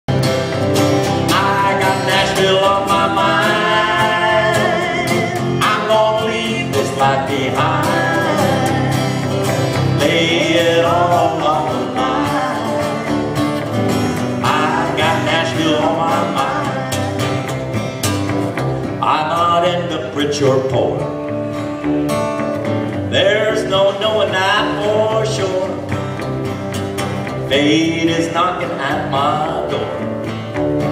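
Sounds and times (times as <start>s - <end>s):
acoustic guitar: 0.0s - 30.9s
electric guitar: 0.1s - 30.9s
person singing: 1.2s - 13.6s, 14.3s - 17.5s.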